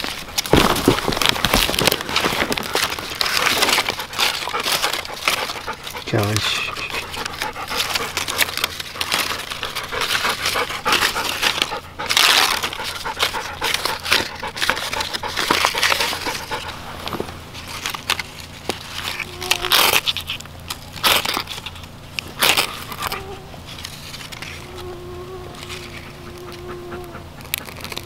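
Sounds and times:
bark tearing and crinkling: 0.0 - 28.0
sharp crackles: 0.0 - 28.0
dog panting: 3.7 - 16.9.

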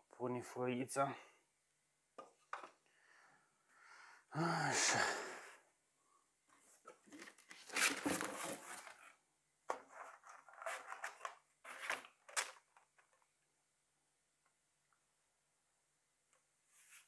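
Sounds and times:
rustling sliding and scraping: 6.5 - 9.2, 9.8 - 12.2, 16.6 - 17.0.

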